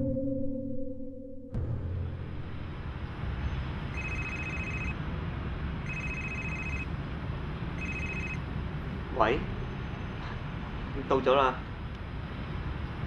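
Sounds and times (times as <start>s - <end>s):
phone ringtone ringing: 3.9s - 5.0s, 5.8s - 6.9s, 7.8s - 8.4s.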